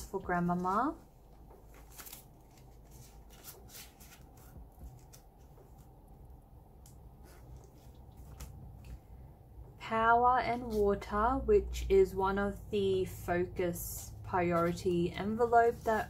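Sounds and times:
plastic banknotes crinkling: 0.6 - 5.9
plastic envelope crackling: 1.2 - 5.9.

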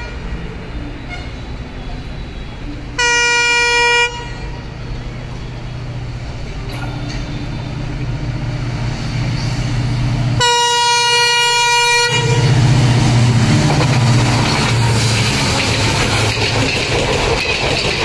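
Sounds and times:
locomotive engine drone: 0.0 - 18.0
train horn blast: 1.0 - 1.5, 3.0 - 4.7, 10.4 - 12.8.

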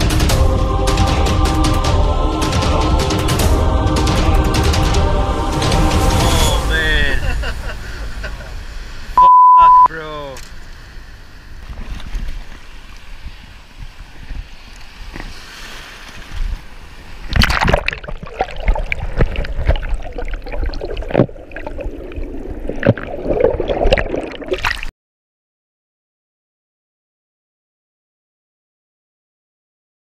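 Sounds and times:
shallow surf washing: 0.0 - 9.2, 9.9 - 24.9
underwater gurgling and sloshing: 10.7 - 24.9.

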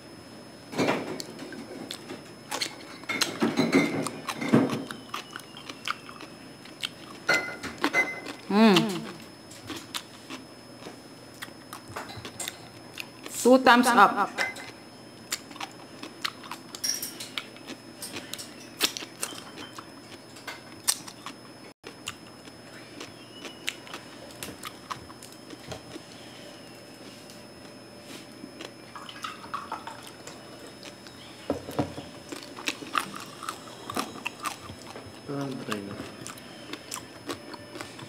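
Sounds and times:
crunching and chewing crispy skin: 4.0 - 13.4, 14.7 - 26.4, 32.2 - 38.0.

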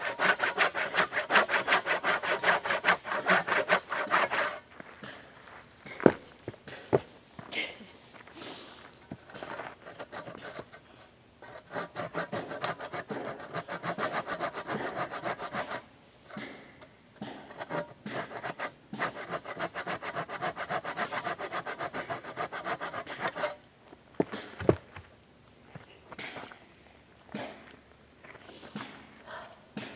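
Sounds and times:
hand saw cutting log: 0.0 - 4.7, 9.2 - 10.8, 11.4 - 23.6.

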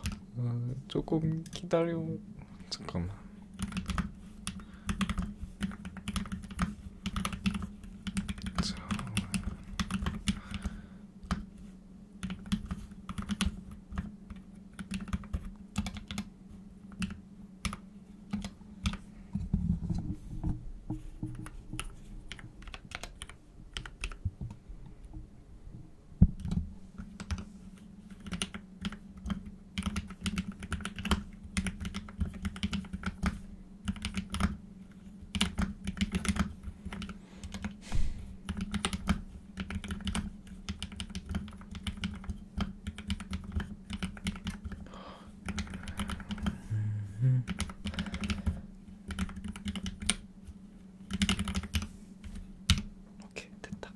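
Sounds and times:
keyboard typing: 0.0 - 0.2, 3.6 - 11.5, 12.2 - 19.1, 21.3 - 24.2, 28.1 - 37.8, 38.4 - 46.6, 47.4 - 50.2, 51.0 - 51.9, 52.7 - 52.9
steady low hum: 0.0 - 53.9.

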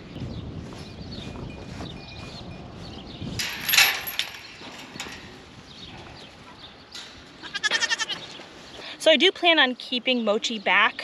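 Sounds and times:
goat bleating: 7.4 - 8.4.

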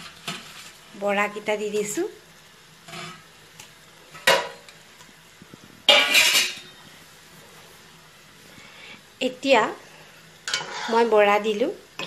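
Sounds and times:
utensil scraping iron pan: 5.9 - 6.7, 10.5 - 11.1.

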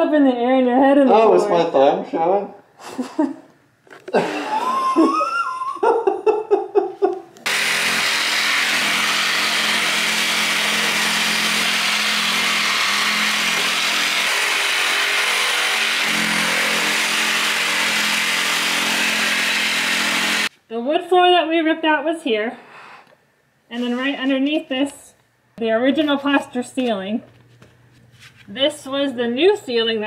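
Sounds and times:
shop vacuum running: 7.4 - 20.5.

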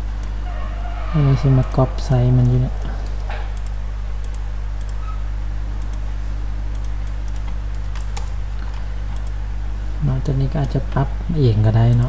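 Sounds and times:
steady low hum: 0.0 - 12.0
keyboard and mouse clicks: 2.4 - 6.1, 6.7 - 9.4.

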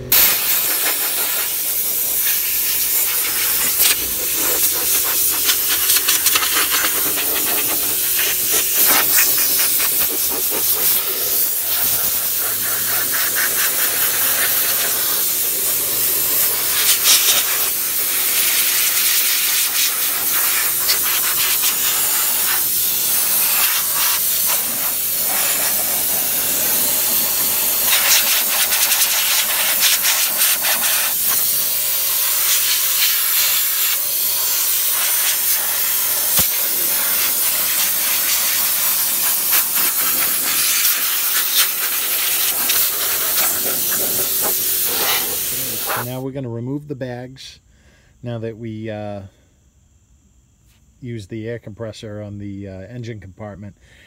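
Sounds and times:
air blow gun hissing: 0.0 - 46.2.

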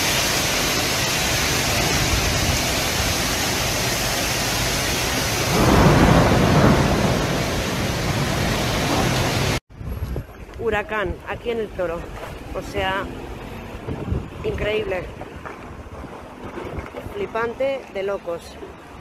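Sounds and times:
heavy rain: 0.0 - 9.6
wind: 0.0 - 19.0.

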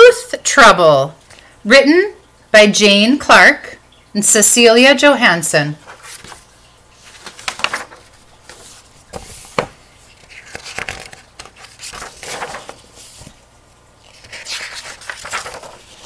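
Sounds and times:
paper pages rustling: 5.8 - 16.0
page and cover clicks: 5.9 - 6.4, 7.1 - 13.4, 14.1 - 16.0.

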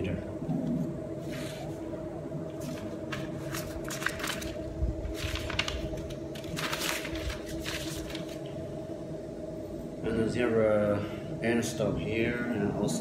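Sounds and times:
steady low hum: 0.0 - 13.0
paper rustling and shuffling: 2.5 - 8.6.

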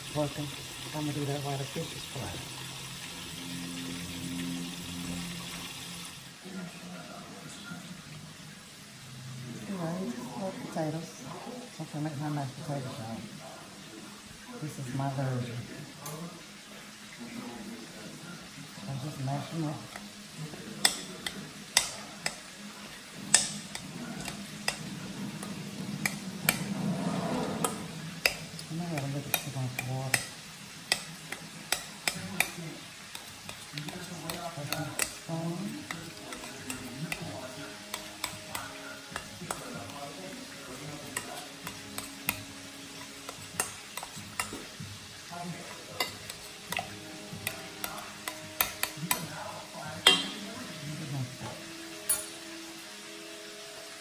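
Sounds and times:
utensil mashing potatoes in a pot: 0.0 - 3.3, 18.7 - 51.1
fish sizzling in oil: 0.0 - 54.0
utensil clinking on metal pot: 20.8 - 22.6, 23.3 - 26.8, 27.6 - 44.9, 45.6 - 50.6, 51.4 - 52.4.

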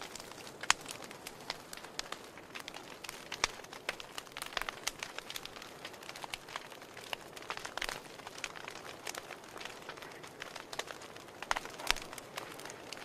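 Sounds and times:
wood fire crackling and popping: 0.0 - 13.0.

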